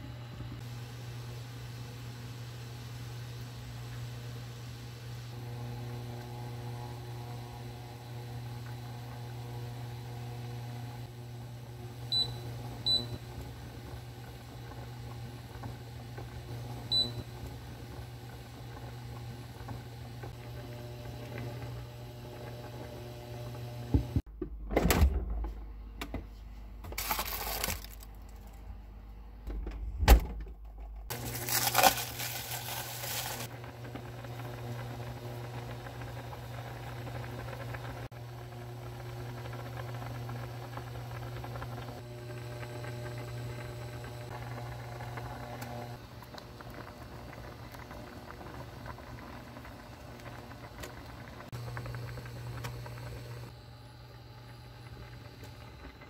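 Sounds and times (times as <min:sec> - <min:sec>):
cooktop hum: 0:00.0 - 0:56.0
soup boiling in pot: 0:00.6 - 0:24.0, 0:31.1 - 0:56.0
cooktop control beeps: 0:12.1 - 0:13.2, 0:16.9 - 0:17.3
plastic bag crinkling: 0:26.9 - 0:28.6, 0:31.1 - 0:33.5.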